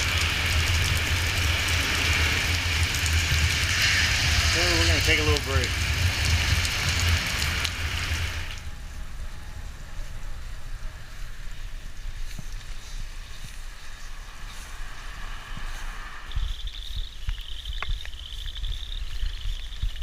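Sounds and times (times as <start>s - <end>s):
rain hissing: 0.0s - 20.0s
wet road noise: 0.0s - 20.0s
insects chirring: 9.4s - 20.0s.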